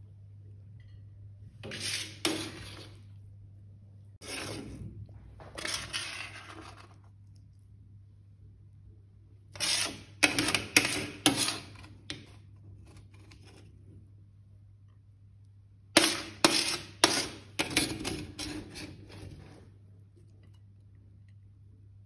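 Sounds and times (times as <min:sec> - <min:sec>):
metal spoon scraping pan: 0:01.6 - 0:03.2, 0:04.2 - 0:04.8, 0:05.5 - 0:07.0, 0:09.5 - 0:13.7, 0:16.0 - 0:19.8.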